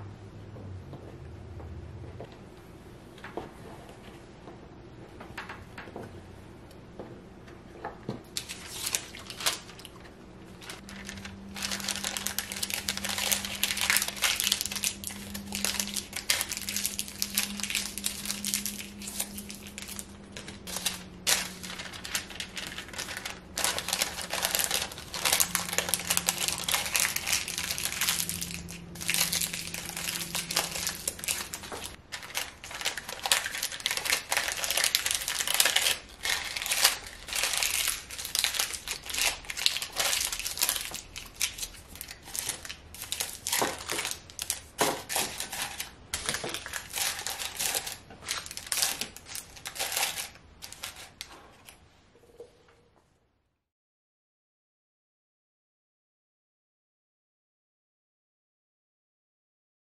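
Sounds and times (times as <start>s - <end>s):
baking paper crinkling: 8.3s - 51.9s.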